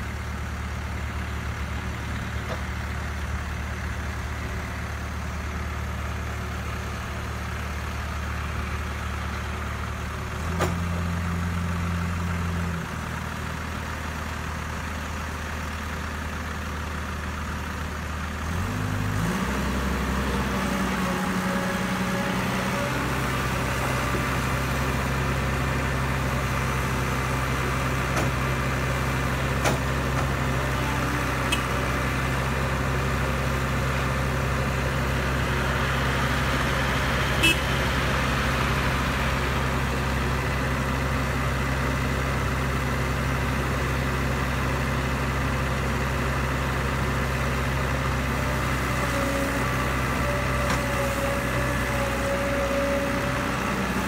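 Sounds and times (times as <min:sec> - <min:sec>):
diesel engine humming: 0:00.0 - 0:54.0.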